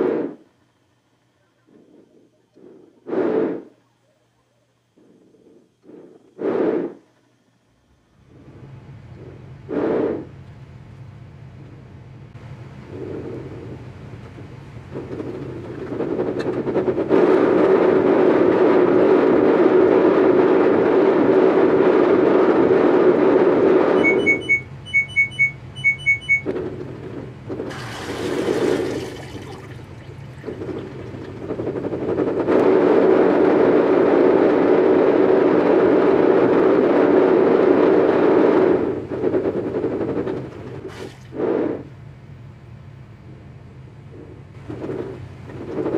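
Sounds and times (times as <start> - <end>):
short electronic beeps: 23.9 - 26.5
washing machine churning: 23.9 - 33.1.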